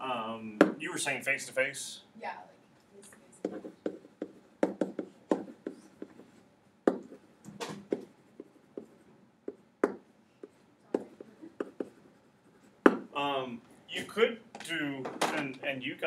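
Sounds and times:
stylus tapping and scratching: 0:03.4 - 0:13.2.

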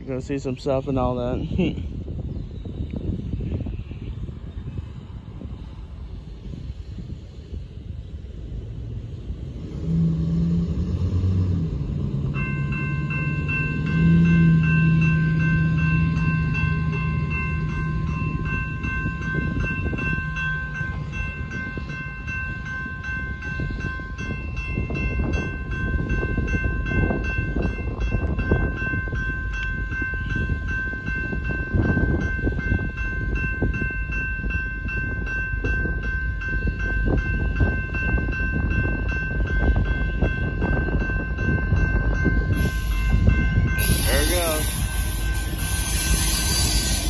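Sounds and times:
crossing warning bell ringing: 0:11.2 - 0:47.0.

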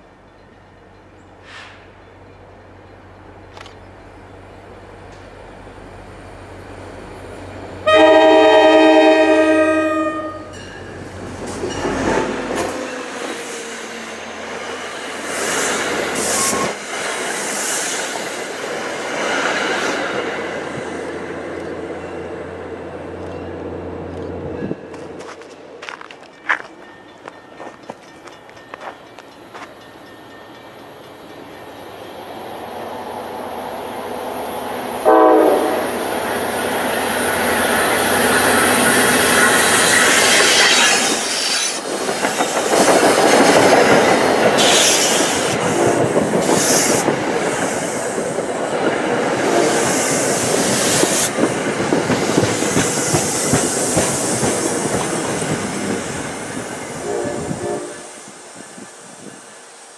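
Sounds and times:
diesel locomotive passing: 0:00.0 - 0:59.9
train coaches rumbling past: 0:00.0 - 0:59.9
train horn blast: 0:07.8 - 0:10.5, 0:35.0 - 0:36.1, 0:57.0 - 0:58.2
high wheel squeals: 0:37.0 - 0:41.9.

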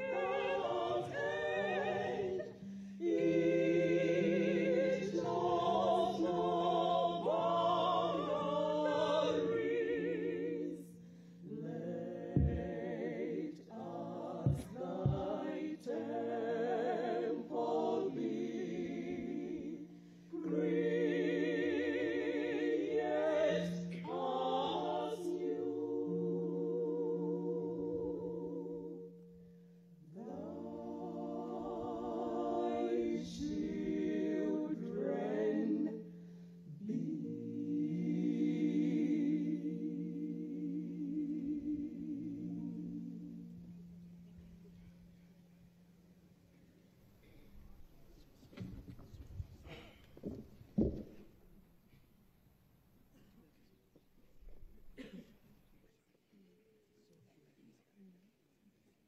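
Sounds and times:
choir singing a hymn: 0:00.0 - 0:44.2.

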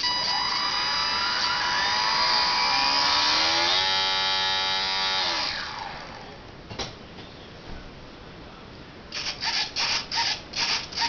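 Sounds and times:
electric motor propeller whine: 0:00.0 - 0:06.4.

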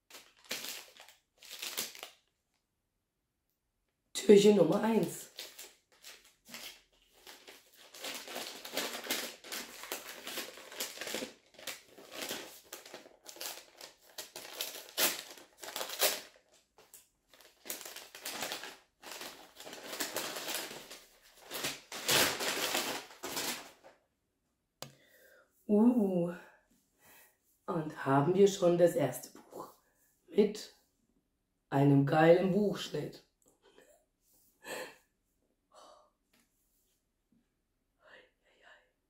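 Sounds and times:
paper bag crinkling and rustling: 0:00.0 - 0:02.3, 0:04.9 - 0:24.0.

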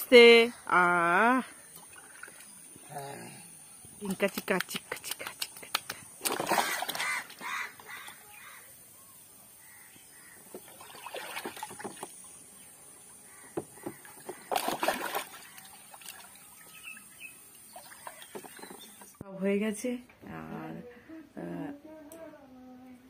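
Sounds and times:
child splashing water in tub: 0:04.2 - 0:07.6, 0:10.5 - 0:12.2, 0:13.9 - 0:16.5.

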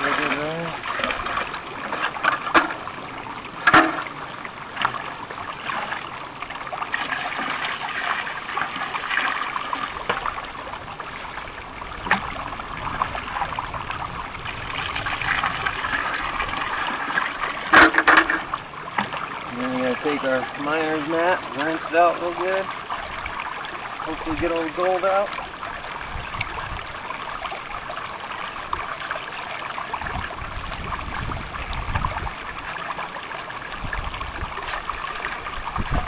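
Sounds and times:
water pouring into a bucket: 0:00.0 - 0:02.8, 0:03.6 - 0:13.8, 0:14.4 - 0:36.0.

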